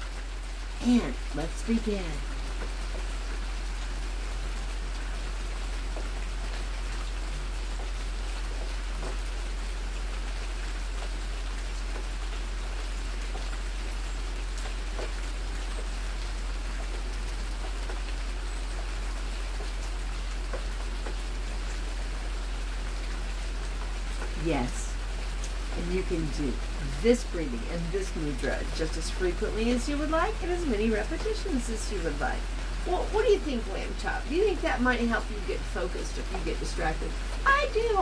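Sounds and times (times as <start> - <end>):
low electrical hum: 0.0 - 38.0.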